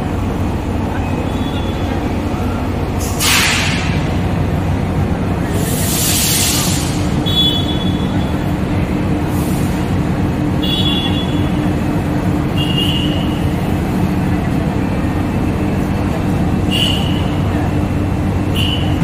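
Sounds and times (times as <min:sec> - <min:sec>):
crowd noise: 0:00.0 - 0:19.0.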